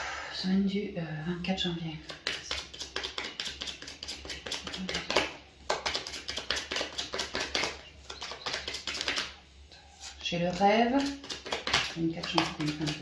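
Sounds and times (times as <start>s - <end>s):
cards being shuffled: 2.1s - 9.3s, 10.5s - 13.0s.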